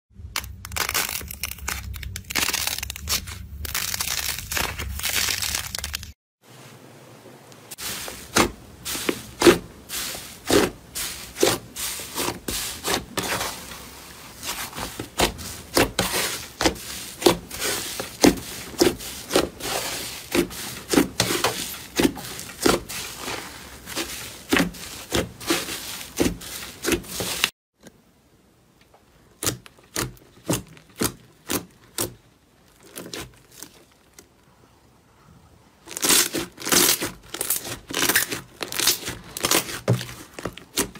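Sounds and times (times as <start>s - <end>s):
slime popping and crackling: 0.2s - 6.1s, 29.4s - 34.2s, 35.8s - 40.9s.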